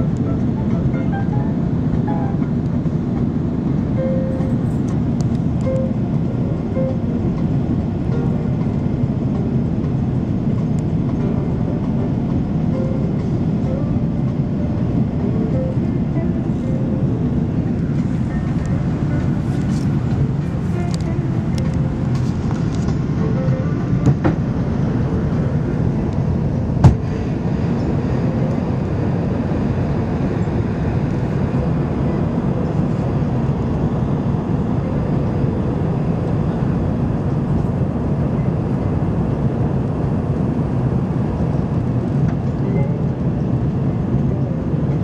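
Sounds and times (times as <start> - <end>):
aircraft cabin engine rumble: 0.0 - 45.0.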